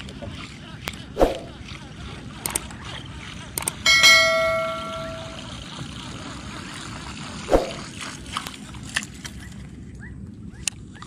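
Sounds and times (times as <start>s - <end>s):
wind and water hiss: 3.6s - 9.9s
bell-like ding: 3.9s - 5.5s.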